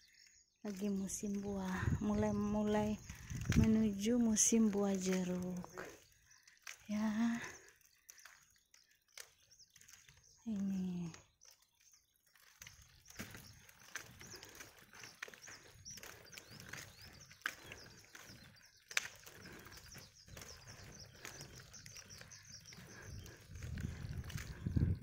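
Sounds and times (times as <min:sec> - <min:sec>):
footsteps on pavement: 0:00.0 - 0:25.0
small birds chirping: 0:00.0 - 0:25.0
wind rumble on microphone: 0:00.9 - 0:05.9, 0:19.4 - 0:25.0.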